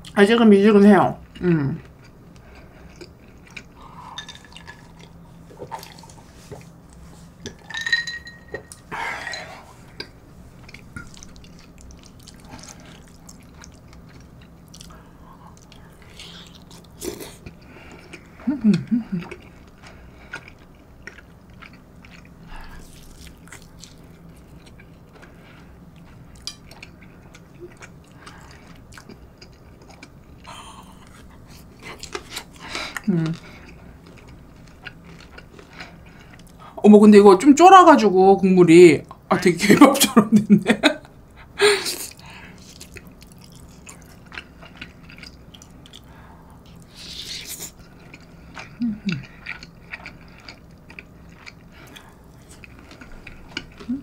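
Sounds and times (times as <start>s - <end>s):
wet chewing: 1.8s - 7.6s, 9.8s - 36.6s, 42.1s - 54.0s
person humming: 18.4s - 19.2s, 48.8s - 49.2s.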